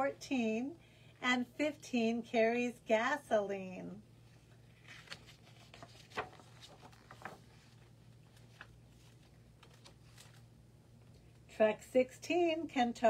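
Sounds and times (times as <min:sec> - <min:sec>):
low steady hum: 0:00.0 - 0:13.0
book pages rustling: 0:04.3 - 0:10.6.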